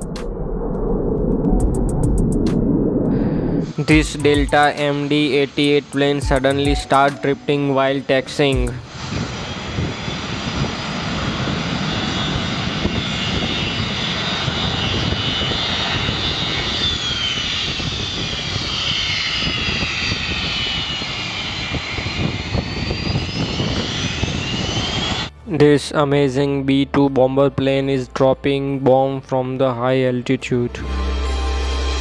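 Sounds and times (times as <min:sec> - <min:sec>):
jet engines rumble and whine: 0:00.0 - 0:25.4.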